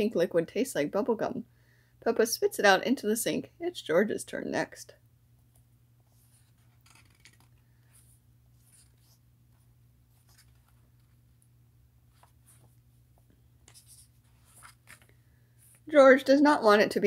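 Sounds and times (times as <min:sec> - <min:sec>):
low steady hum: 0:00.0 - 0:17.0
book pages turning: 0:06.1 - 0:11.3, 0:12.1 - 0:15.8.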